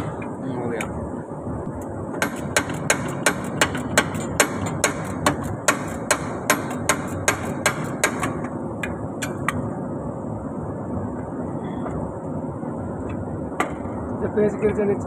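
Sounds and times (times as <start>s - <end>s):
steady background hum: 0.0s - 15.0s
sharp metal taps: 2.1s - 9.6s.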